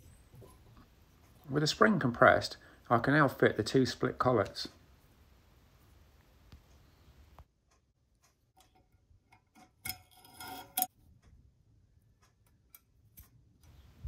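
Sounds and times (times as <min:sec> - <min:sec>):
metallic clicks and taps: 0:07.4 - 0:11.4, 0:12.2 - 0:13.8
metal scraping: 0:08.6 - 0:10.9.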